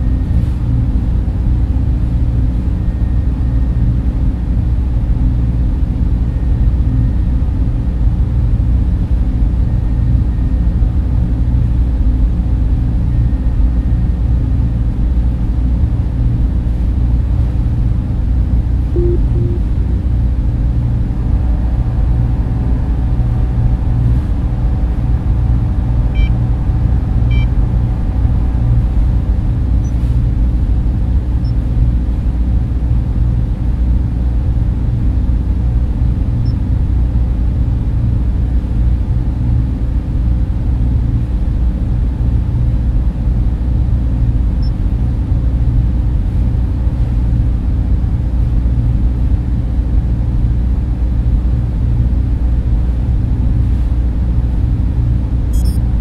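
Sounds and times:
machines and fans droning: 0:00.0 - 0:56.0
faint high blips: 0:18.9 - 0:19.8, 0:55.5 - 0:55.8
short electronic beeps: 0:19.0 - 0:19.7, 0:27.3 - 0:27.5, 0:55.5 - 0:55.8.

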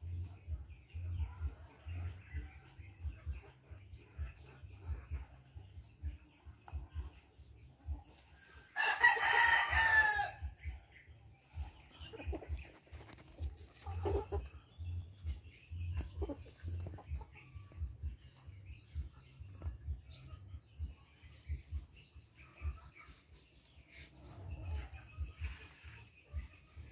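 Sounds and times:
chickens clucking softly: 0:10.5 - 0:26.9.

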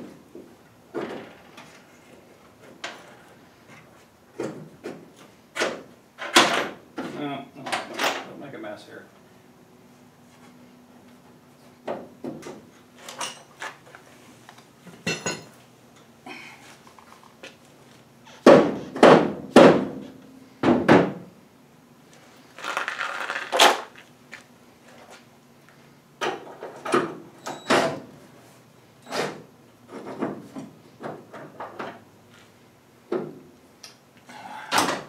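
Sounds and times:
loud knocks: 0:18.4 - 0:20.0, 0:20.6 - 0:21.2.

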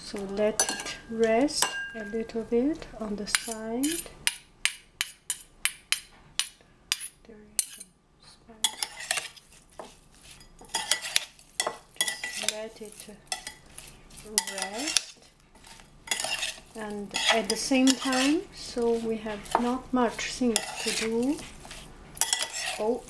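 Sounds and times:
spoon scraping through cucumbers: 0:08.6 - 0:23.0.

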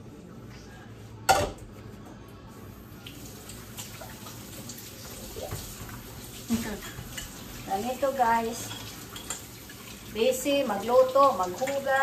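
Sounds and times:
faucet running: 0:03.0 - 0:12.0
cookware clattering against sink: 0:08.6 - 0:09.5.

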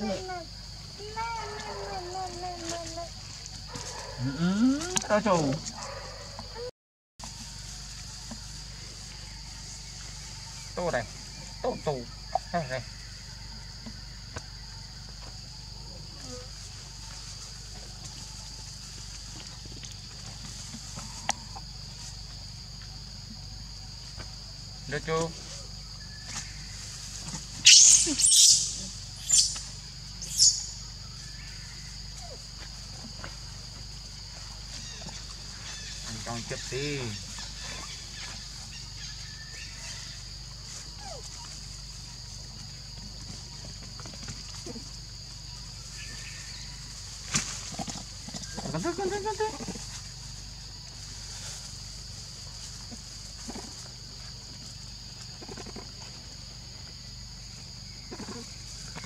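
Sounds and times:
macaques soft calls: 0:00.0 - 0:05.1, 0:27.6 - 0:30.9, 0:37.2 - 0:41.8, 0:48.4 - 0:50.1, 0:58.1 - 0:58.6
high insect drone: 0:00.0 - 0:59.0
baby monkeys squealing: 0:27.6 - 0:29.6, 0:30.2 - 0:30.7.

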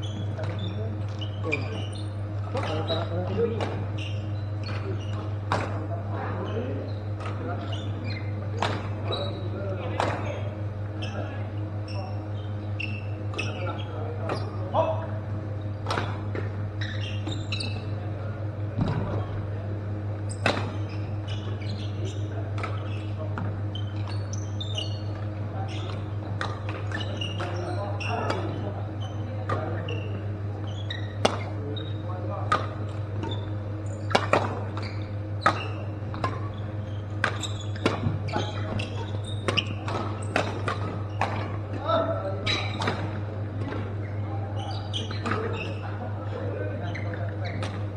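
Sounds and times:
shoes squeaking on court floor: 0:00.0 - 0:47.9
steady low hum: 0:00.0 - 0:47.9
racket hitting shuttlecock: 0:04.7 - 0:05.8, 0:15.8 - 0:17.2, 0:20.4 - 0:21.0, 0:32.5 - 0:34.8, 0:35.4 - 0:36.5, 0:37.1 - 0:41.7.

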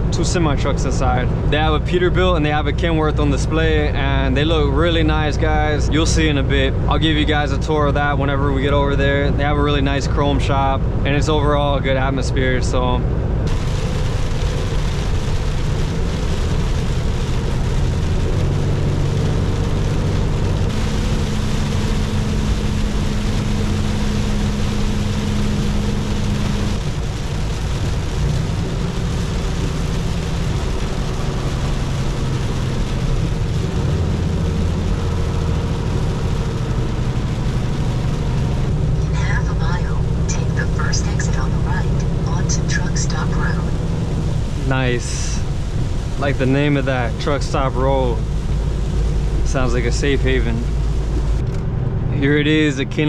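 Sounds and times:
road noise: 0:00.0 - 0:53.0
truck engine drone: 0:00.0 - 0:53.0
steady hum: 0:12.0 - 0:53.0.

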